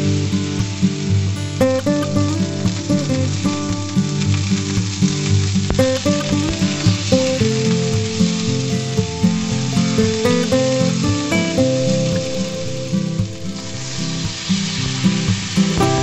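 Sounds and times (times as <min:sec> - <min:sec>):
background music with held notes: 0:00.0 - 0:16.0
steaks sizzling in a frying pan: 0:00.0 - 0:16.0.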